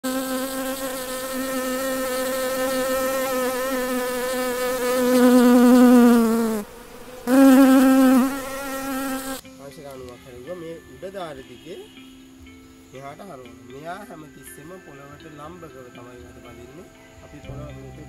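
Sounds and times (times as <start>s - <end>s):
bee buzzing in flight: 0.0s - 9.4s.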